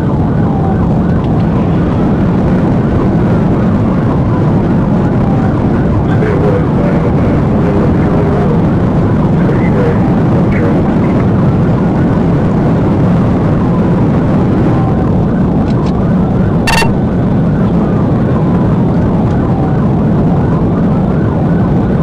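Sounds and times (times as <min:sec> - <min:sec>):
police siren wailing: 0:00.0 - 0:09.9, 0:13.2 - 0:22.0
car road and engine noise: 0:00.0 - 0:22.0
short electronic beep: 0:16.7 - 0:17.0.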